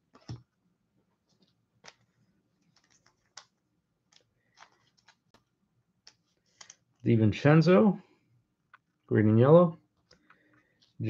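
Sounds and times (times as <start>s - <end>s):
trading cards clicking: 2.7s - 6.9s.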